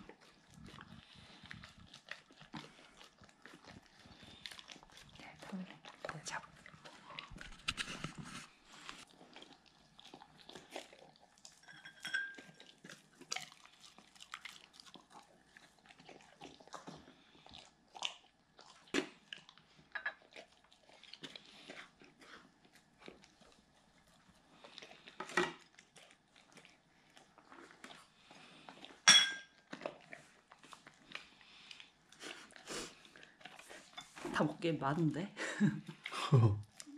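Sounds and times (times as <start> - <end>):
dog chewing and licking: 0.0 - 34.7
glass dish clinking: 11.6 - 12.5, 29.0 - 29.5.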